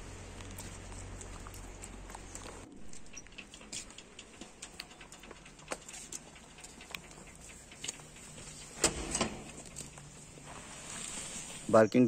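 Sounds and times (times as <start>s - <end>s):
metal bolt latch clanking: 8.7s - 9.8s.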